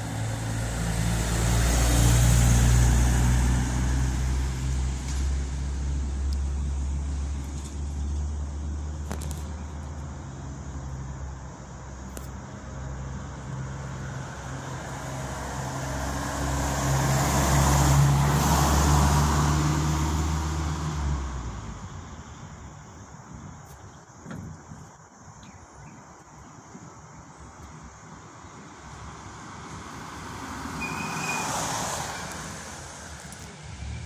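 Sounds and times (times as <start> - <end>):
minibus engine driving past: 0.0 - 9.0, 12.8 - 22.4, 28.1 - 34.0
tyre and road noise: 0.0 - 34.0.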